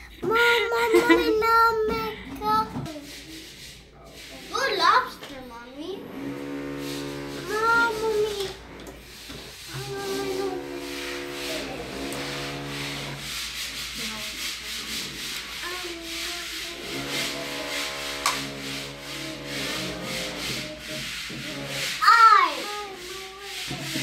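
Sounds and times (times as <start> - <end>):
power drill whining: 6.0 - 13.3, 16.8 - 22.1.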